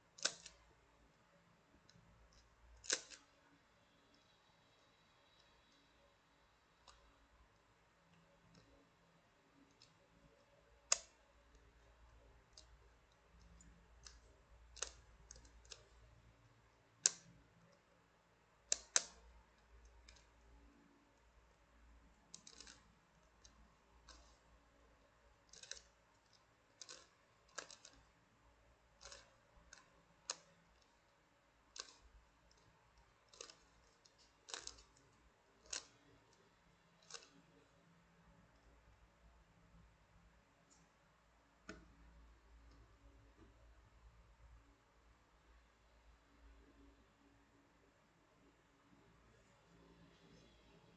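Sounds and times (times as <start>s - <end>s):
plastic puzzle pieces clicking: 0.2s - 0.7s, 1.9s - 3.3s, 10.8s - 16.3s, 22.3s - 24.5s, 25.4s - 28.2s, 28.9s - 30.9s, 31.7s - 37.6s.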